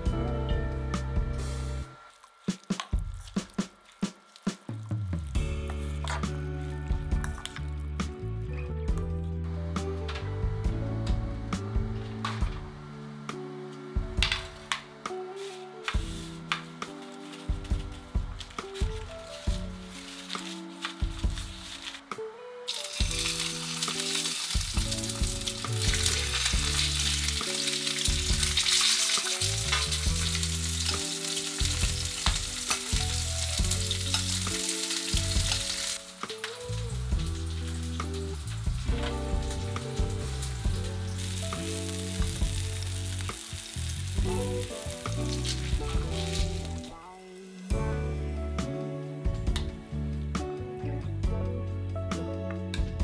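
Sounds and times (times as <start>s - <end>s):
fish sizzling in frying pan: 2.0s - 7.7s, 22.7s - 47.7s.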